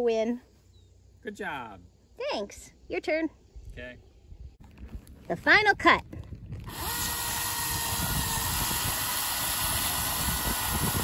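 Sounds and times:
chainsaw cutting at full throttle: 6.6s - 11.0s.

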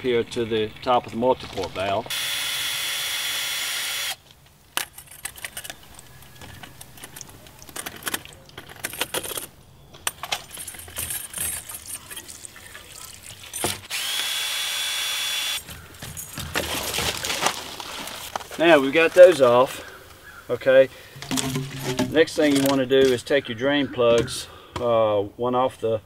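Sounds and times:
cordless drill running: 2.1s - 4.2s, 13.7s - 15.6s
hose and clamp clicks and knocks: 21.2s - 23.2s.

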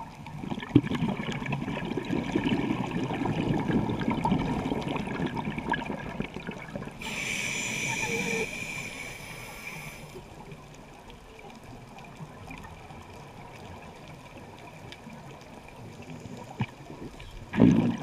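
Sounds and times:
low bubbling water: 0.0s - 7.0s
regulator hissing inhale: 7.0s - 10.2s.

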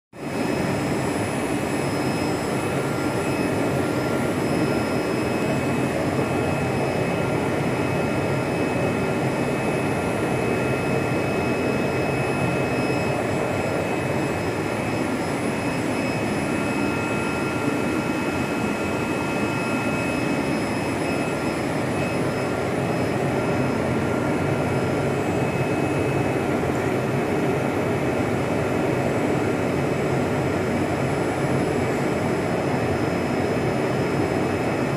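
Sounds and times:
high whining tones: 0.3s - 26.4s.

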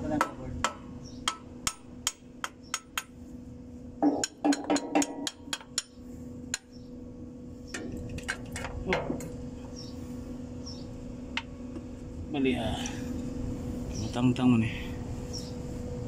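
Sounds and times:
faint steady hum: 0.0s - 16.0s
hammer tapping on metal: 0.1s - 3.2s, 4.0s - 6.7s.

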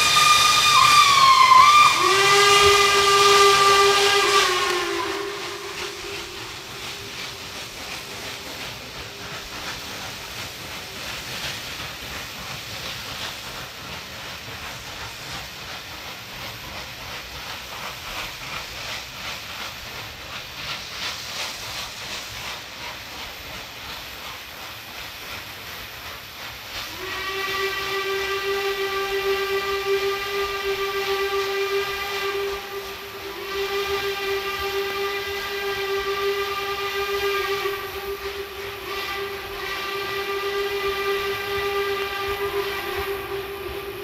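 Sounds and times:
steam whistle: 0.0s - 16.9s, 26.8s - 44.0s
hiss of steam: 0.0s - 44.0s
steam locomotive exhaust beats: 0.0s - 44.0s.

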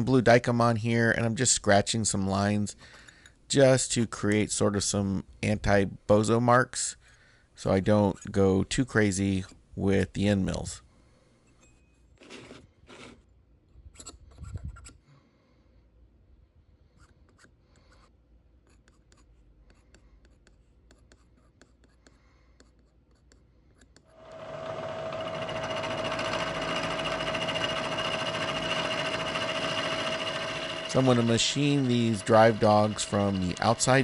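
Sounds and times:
milling machine whine: 24.2s - 34.0s
scriber scratching metal: 25.4s - 34.0s.

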